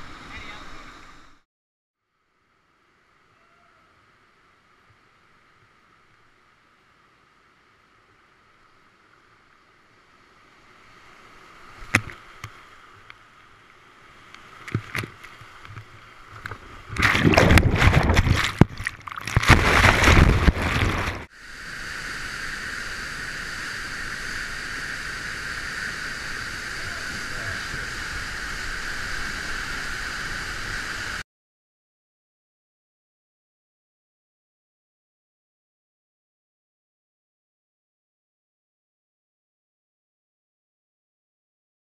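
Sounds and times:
whitewater rushing: 14.4 - 31.2
loud crashing of water: 16.8 - 23.0
waterfall roar: 19.6 - 31.2.

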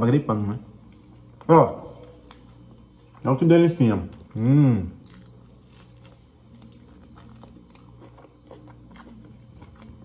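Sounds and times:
low steady hum: 0.0 - 10.0
person chewing food: 4.1 - 10.0.

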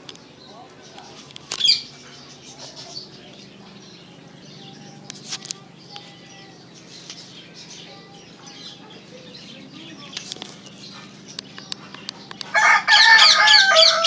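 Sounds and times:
birds chirping: 0.0 - 14.0
sharp clicks: 10.0 - 12.5.

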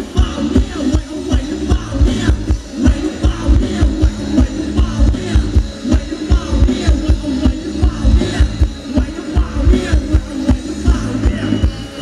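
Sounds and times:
heavy kick drum beat: 0.0 - 12.0
live band dance music: 0.0 - 12.0.

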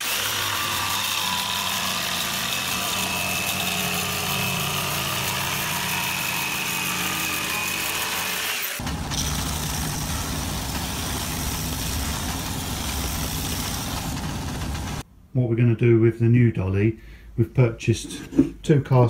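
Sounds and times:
belt sander running: 0.0 - 15.0
jigsaw cutting plywood: 0.0 - 15.0.

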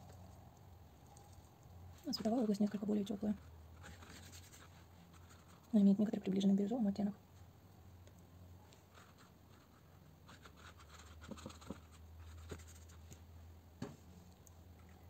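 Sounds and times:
brush scratching on paper: 3.3 - 5.8, 8.8 - 13.0.

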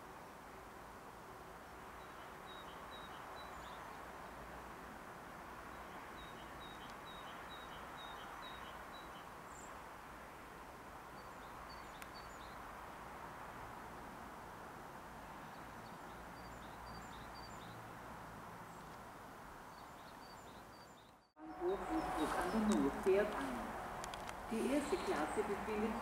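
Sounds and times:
small birds chirping: 1.7 - 4.3, 5.6 - 9.8, 11.1 - 12.7, 15.3 - 17.9, 18.6 - 26.0
low background hum: 21.4 - 26.0.

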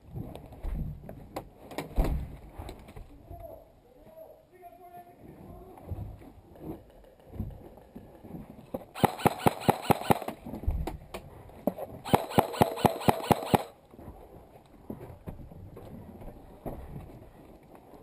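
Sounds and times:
airsoft rifle firing: 9.0 - 10.4, 12.1 - 13.8.

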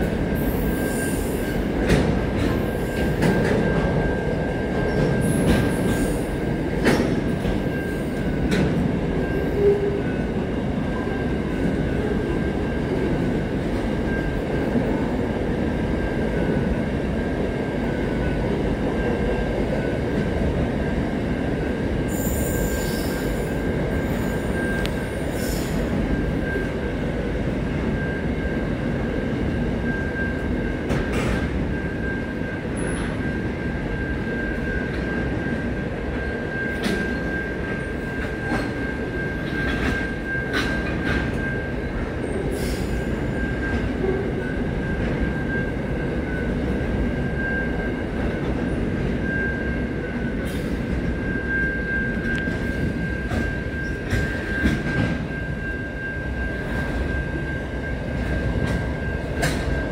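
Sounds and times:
freight train wheels rumbling: 0.0 - 59.9
high wheel squeals: 22.1 - 26.7.

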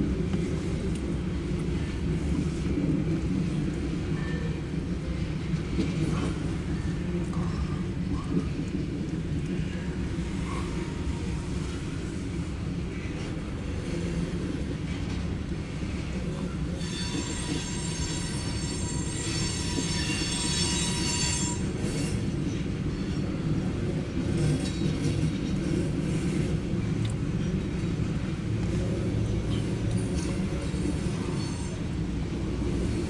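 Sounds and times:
freight train rumbling past: 0.0 - 33.0
train wheels squealing: 16.4 - 23.6, 29.2 - 32.0.

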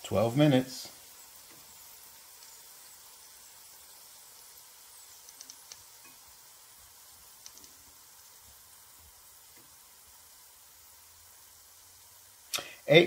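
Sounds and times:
hot grease sizzling: 0.0 - 13.0
small crackling pops: 1.4 - 4.5, 5.1 - 6.5, 7.1 - 8.5, 9.4 - 9.8.

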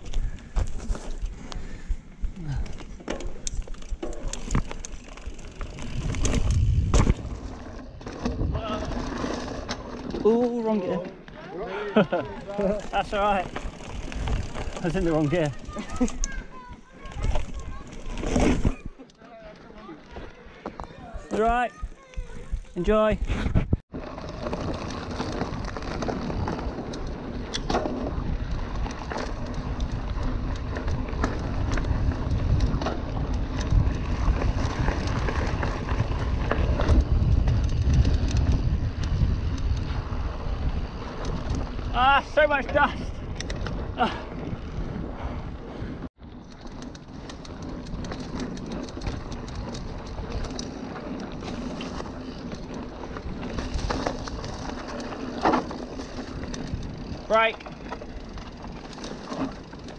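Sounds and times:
low rumble of tyres and wind: 0.0 - 11.4, 12.2 - 19.0, 23.4 - 59.9
bike rattling over bumps: 0.0 - 59.9
wind on microphone: 5.8 - 7.5, 29.6 - 42.0.

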